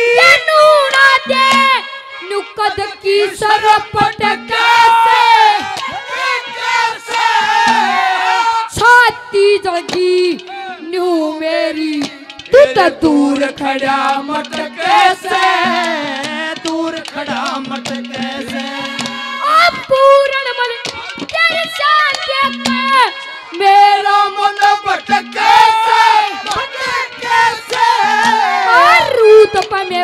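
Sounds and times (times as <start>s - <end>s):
boy singing into a microphone: 0.0s - 6.0s, 7.6s - 30.0s
drum strokes: 3.5s - 8.9s, 11.5s - 20.0s, 20.6s - 30.0s.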